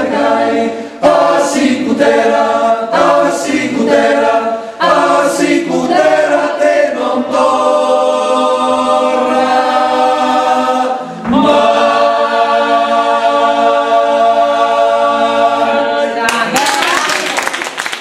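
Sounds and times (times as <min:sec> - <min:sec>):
male choir singing in harmony: 0:00.0 - 0:16.2
short breath: 0:04.6 - 0:04.8.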